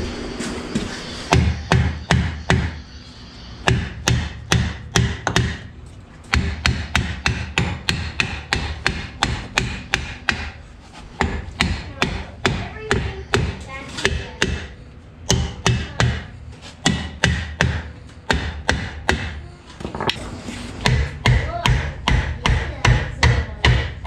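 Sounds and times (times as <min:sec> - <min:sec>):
hammer striking metal drum: 0:01.3 - 0:02.8, 0:03.6 - 0:05.7, 0:06.3 - 0:10.6, 0:20.8 - 0:24.0.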